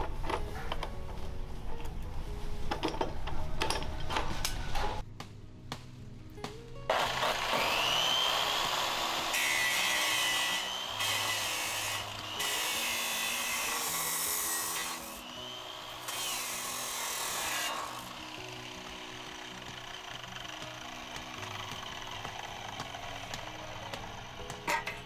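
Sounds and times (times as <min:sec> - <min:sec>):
cut-off saw grinding steel: 0:06.9 - 0:25.0.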